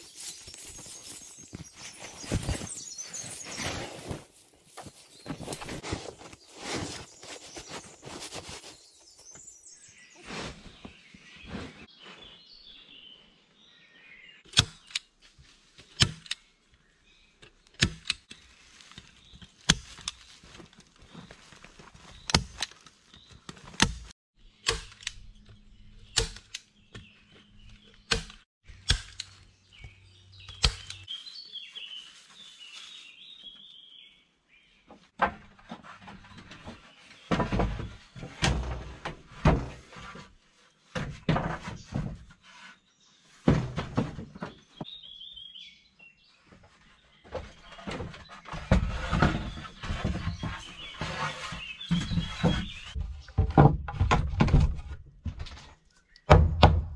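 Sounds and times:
bird chirping: 0.0s - 4.1s, 24.4s - 35.0s, 44.4s - 53.5s.

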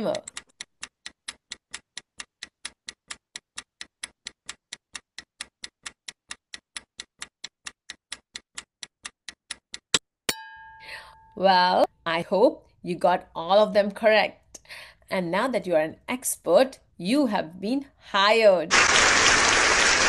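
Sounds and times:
clock ticking: 0.0s - 10.0s.

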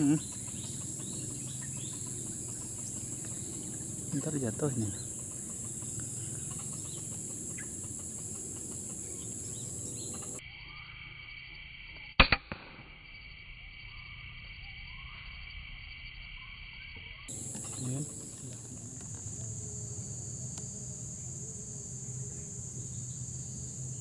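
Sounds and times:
insects buzzing: 0.0s - 12.1s, 13.1s - 24.0s
air rifle shot: 12.2s - 12.8s.

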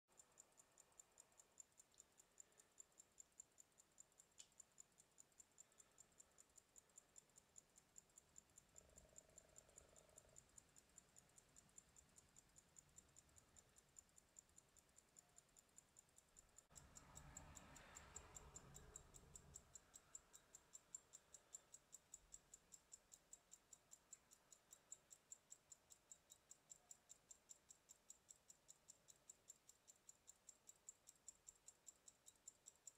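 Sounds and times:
faint background noise: 0.1s - 32.9s
pocket watch ticking: 0.1s - 32.9s.

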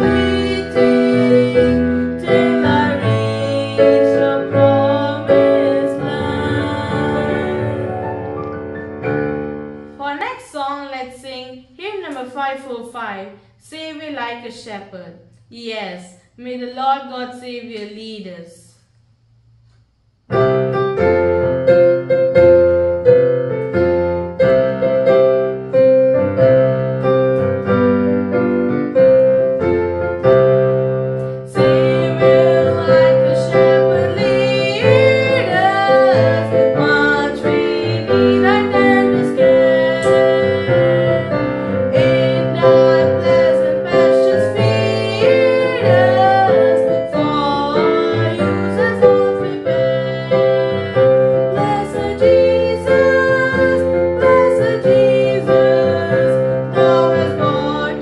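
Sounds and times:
girl singing a hymn: 0.0s - 8.0s, 31.5s - 58.0s
piano playing: 0.0s - 10.5s, 20.3s - 58.0s.

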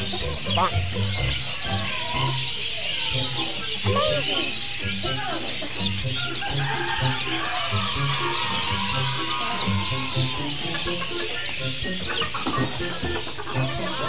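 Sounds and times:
chickens clucking: 0.0s - 14.0s
curving bird call: 1.2s - 5.4s, 6.2s - 12.6s.

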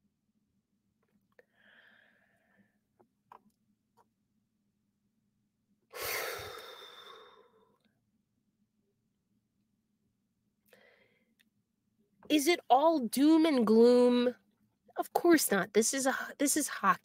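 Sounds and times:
woman sighing heavily: 5.9s - 7.6s.

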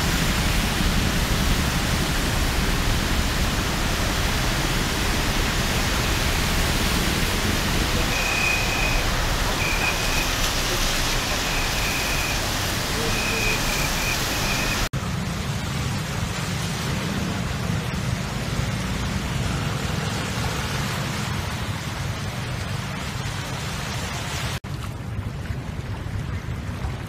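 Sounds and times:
traffic hiss on wet road: 0.0s - 24.6s
cars rumbling through floodwater: 0.0s - 27.0s.

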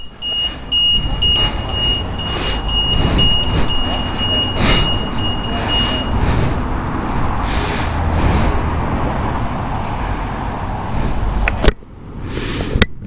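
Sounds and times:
high electronic beep: 0.0s - 6.1s
street traffic rumble: 0.0s - 13.0s.

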